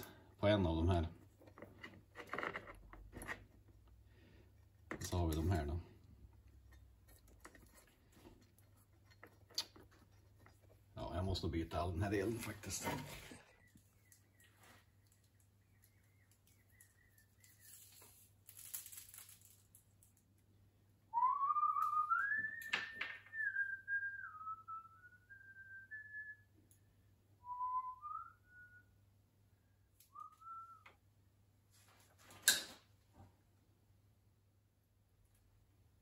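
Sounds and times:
person whistling a tune: 21.2s - 26.5s, 27.4s - 29.0s, 30.1s - 30.8s.

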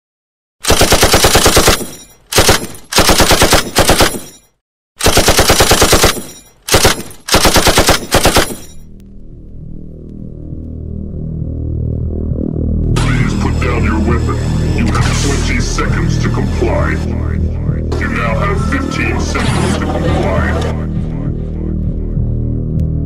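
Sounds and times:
automatic machine-gun fire: 0.6s - 4.2s, 5.0s - 8.7s
low electronic synth drone: 8.9s - 23.0s.

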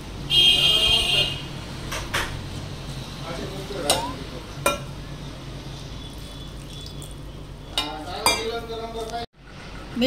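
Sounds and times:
hand mixing wet batter: 6.0s - 8.2s.

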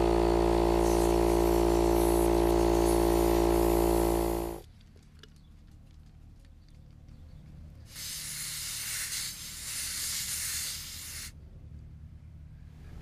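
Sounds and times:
air compressor humming: 0.0s - 4.6s.

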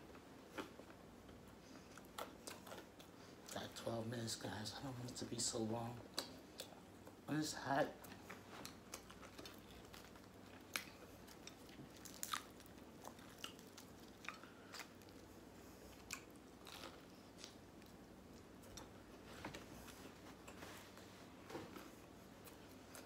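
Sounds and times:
chewing: 0.5s - 3.6s, 8.0s - 19.0s.

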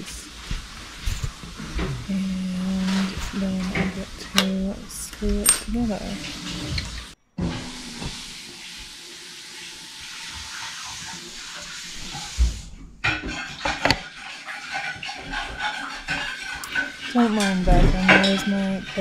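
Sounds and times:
dishes and utensils clinking: 0.0s - 7.2s, 13.0s - 19.0s
steady cooking hiss: 0.0s - 12.8s.

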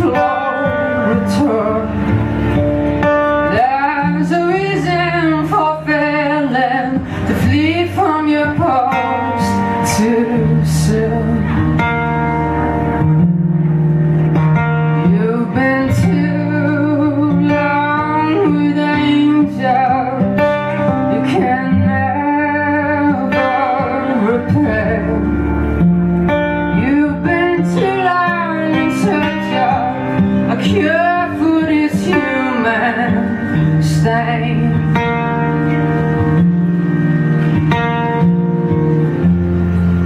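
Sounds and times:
guitar accompaniment: 0.0s - 40.0s.

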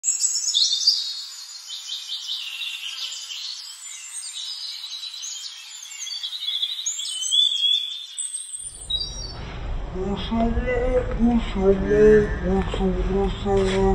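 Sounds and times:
birds chirping and twittering: 0.0s - 13.9s
low rushing noise: 8.7s - 13.9s.

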